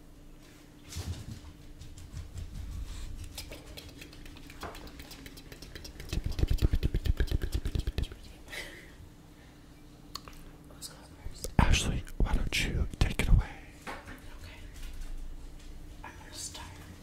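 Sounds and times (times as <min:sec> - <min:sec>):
wet mouth clicks: 0:03.2 - 0:08.3, 0:10.1 - 0:10.4.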